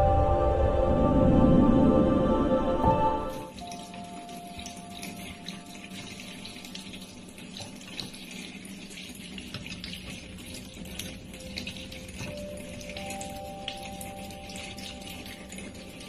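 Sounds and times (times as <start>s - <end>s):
water running into metal sink: 3.5s - 16.0s.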